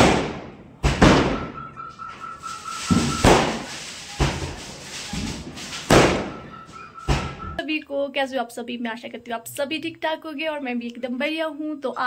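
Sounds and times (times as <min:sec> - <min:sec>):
fireworks bangs: 0:00.0 - 0:07.6.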